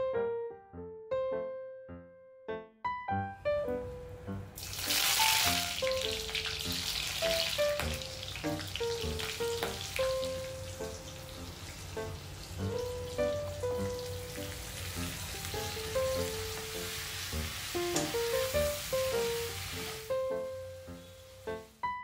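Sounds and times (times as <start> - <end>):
gentle piano music: 0.0 - 22.0
hot oil sizzling: 4.5 - 21.8.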